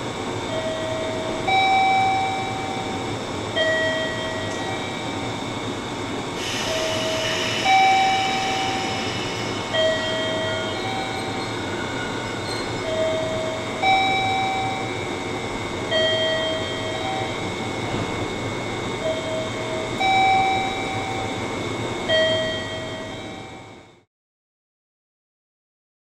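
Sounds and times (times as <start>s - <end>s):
electric train rumbling: 0.0s - 24.1s.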